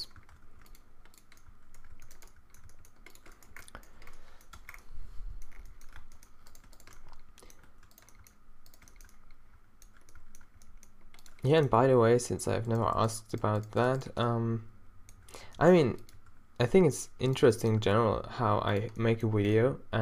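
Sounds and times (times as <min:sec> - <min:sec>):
computer keyboard clicks: 0:00.0 - 0:11.5.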